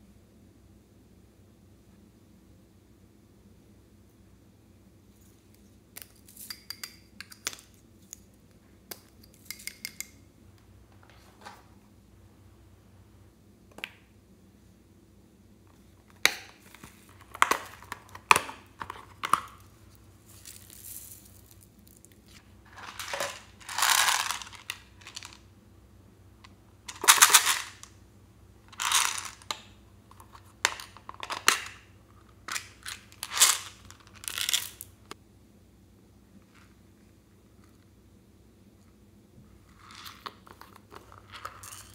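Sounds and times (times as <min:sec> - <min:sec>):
plastic beads poured into glass dish: 0:20.3 - 0:22.0, 0:22.8 - 0:25.4.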